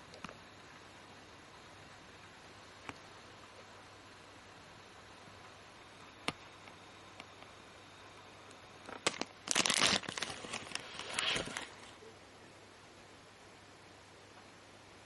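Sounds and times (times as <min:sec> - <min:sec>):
plastic bag crinkling: 0:08.8 - 0:12.0.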